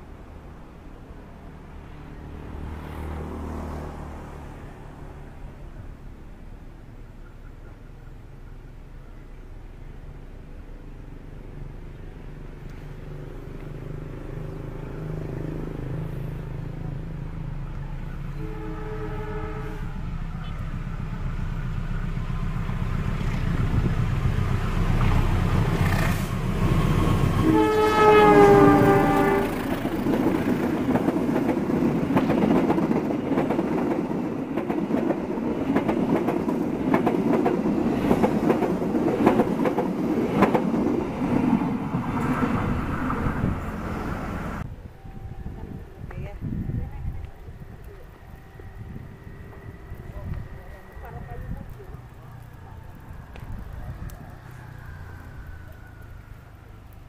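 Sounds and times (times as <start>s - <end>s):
diesel locomotive engine rumble: 0.0s - 57.0s
train horn: 18.1s - 20.7s, 27.0s - 29.8s
wheels clattering over rail joints: 29.2s - 43.8s.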